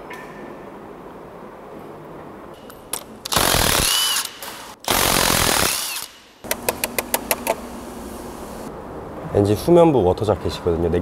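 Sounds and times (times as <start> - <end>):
impact wrench hammering: 2.6 - 7.6
sharp clicks: 3.0 - 7.6.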